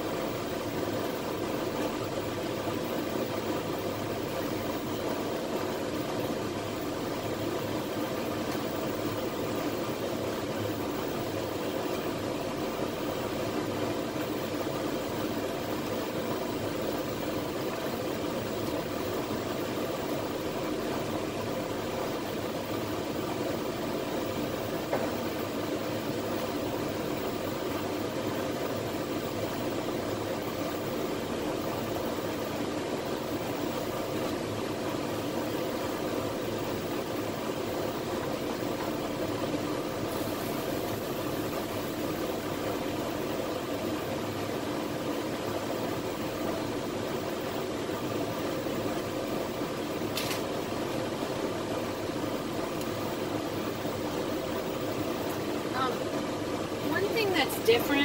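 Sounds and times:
machine hum with hiss: 0.0s - 58.0s.

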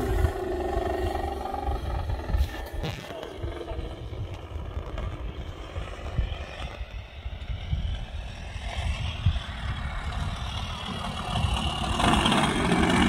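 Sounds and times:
model plane engine droning: 0.0s - 13.0s
wind rumble on microphone: 0.0s - 13.0s.

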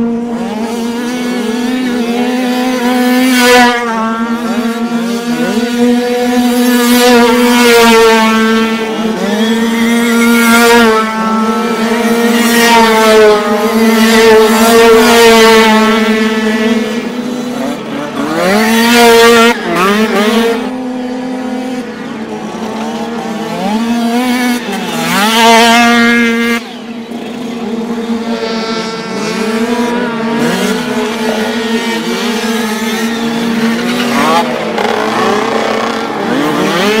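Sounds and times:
dirt bikes racing past: 0.0s - 37.0s
distant engines: 0.0s - 37.0s.

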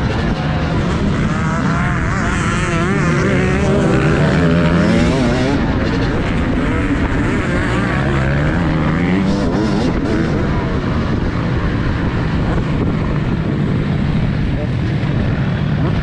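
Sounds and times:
motocross bike engine revving: 0.0s - 14.6s.

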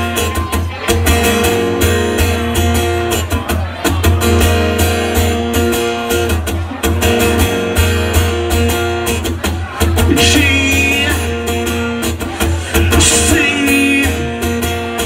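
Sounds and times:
acoustic guitar strummed: 0.0s - 15.0s.

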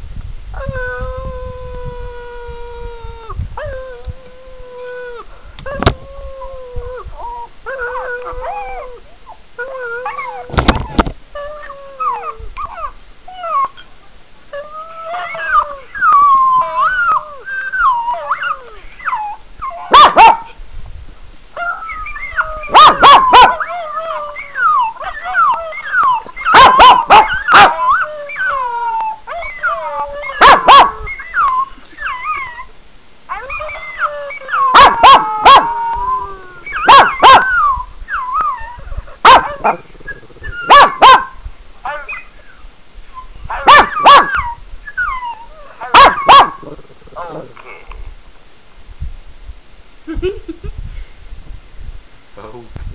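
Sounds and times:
dog whining and howling: 0.6s - 13.9s, 14.5s - 47.9s.

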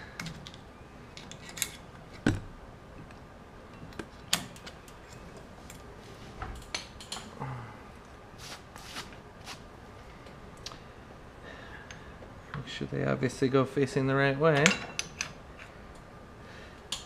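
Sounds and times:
metal parts clicking and clinking: 0.2s - 1.9s.

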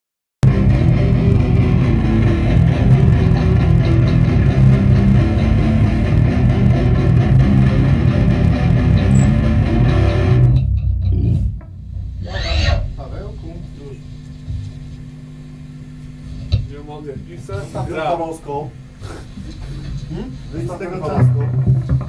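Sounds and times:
heavy metal electric guitar riff: 0.4s - 13.4s, 21.2s - 22.0s.

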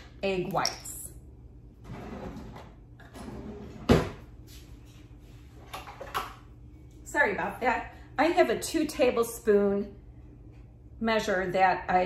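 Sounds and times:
kitchen drawer opening and shutting: 1.8s - 4.2s.

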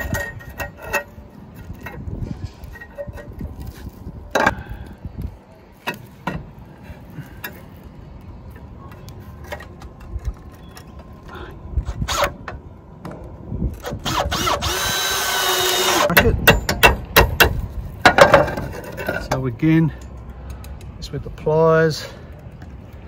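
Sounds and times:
metal bracket clicking and knocking: 16.0s - 21.0s.

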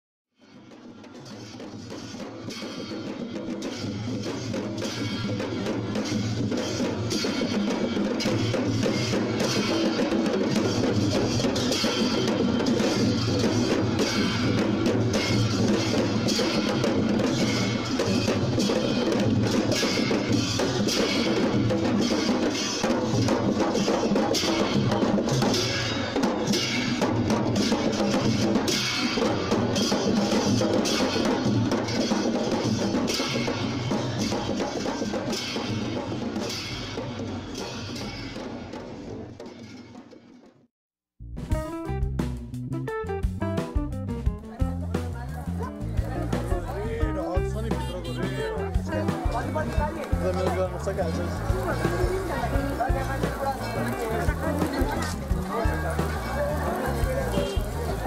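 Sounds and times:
quick dense drum strikes: 1.2s - 39.4s, 41.2s - 58.0s
deep bass drum: 41.2s - 58.0s.

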